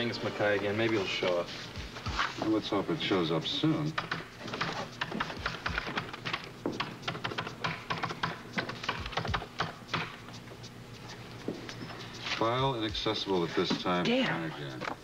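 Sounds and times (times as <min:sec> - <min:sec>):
rapid keyboard typing: 0:03.8 - 0:10.2.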